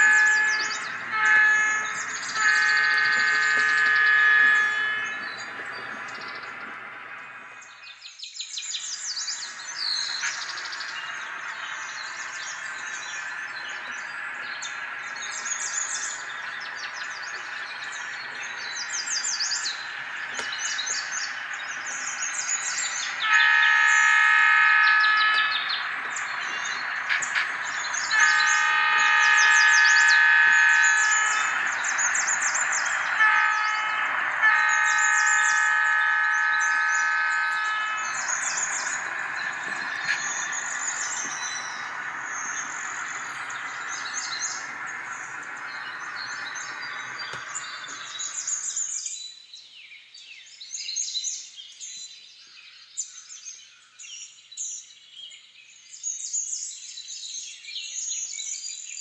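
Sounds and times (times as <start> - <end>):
diesel locomotive horn: 0.0 - 7.6, 9.5 - 48.8
steady low hum: 0.0 - 7.8, 9.3 - 48.8
birds chirping: 0.0 - 49.4.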